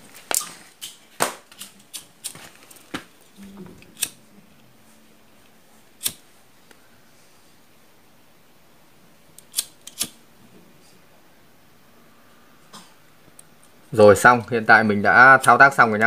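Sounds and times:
wire cutters snipping: 3.9s - 4.2s, 6.0s - 6.2s, 9.4s - 10.2s.

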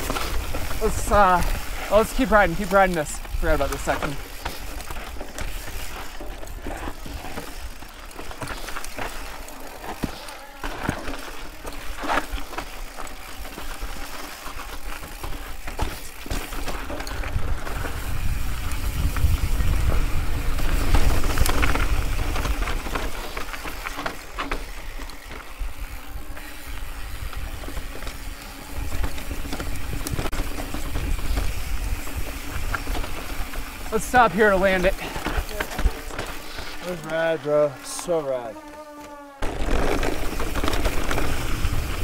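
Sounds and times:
wind buffeting microphone: 17.1s - 22.9s.

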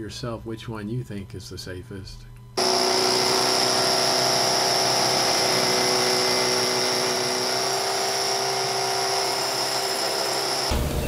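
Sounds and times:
power tool whining: 2.6s - 10.9s.

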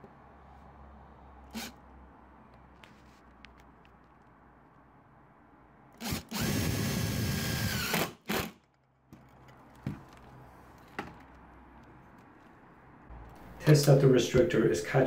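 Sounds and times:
power drill driving a screw: 1.5s - 1.8s, 6.0s - 8.6s.

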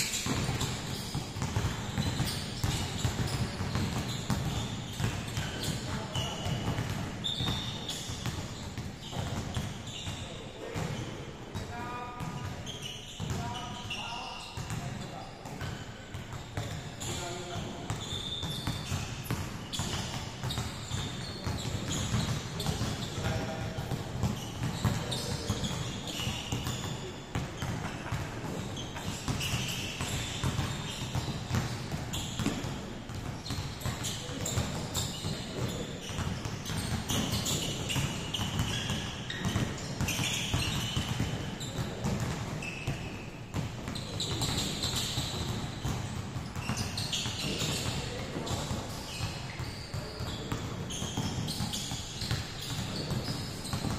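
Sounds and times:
shoe squeaks: 0.0s - 11.1s, 11.7s - 53.9s
basketballs bouncing on hardwood: 0.1s - 11.6s, 12.2s - 13.9s, 14.6s - 53.9s.

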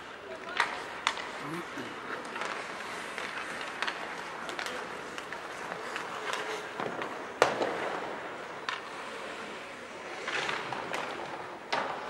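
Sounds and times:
hockey sticks and puck clacking: 0.0s - 12.0s
puck bang with echo: 6.2s - 8.9s, 10.2s - 12.0s.

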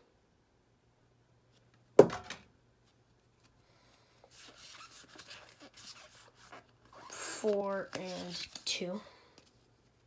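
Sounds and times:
cards sliding and rustling: 4.3s - 10.0s.

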